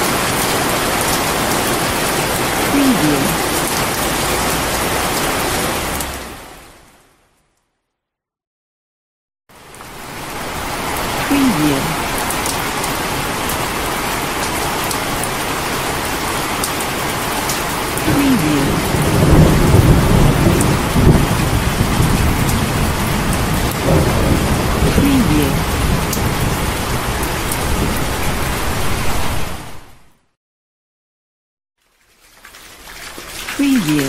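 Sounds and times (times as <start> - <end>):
heavy rain: 0.0 - 7.4, 9.5 - 30.1, 31.8 - 34.0
thunder rumbling: 18.1 - 28.5.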